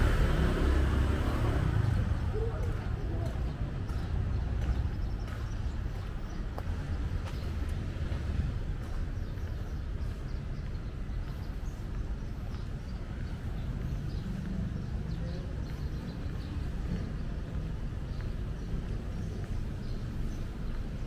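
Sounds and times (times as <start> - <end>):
faint city noise: 0.0 - 21.0
low traffic rumble: 0.0 - 21.0.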